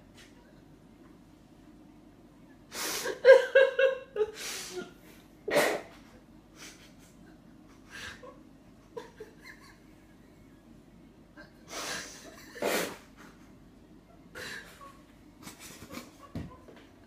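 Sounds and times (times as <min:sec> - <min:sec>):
person stifling laughter: 0:05.8 - 0:10.2, 0:11.4 - 0:13.5, 0:14.1 - 0:16.9.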